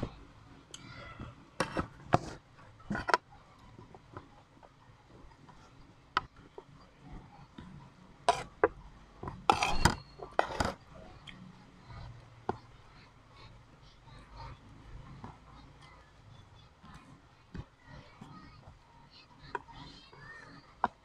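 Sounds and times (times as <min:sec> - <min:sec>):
metal spoon scraping ceramic plate: 0:08.3 - 0:08.5, 0:09.4 - 0:10.8.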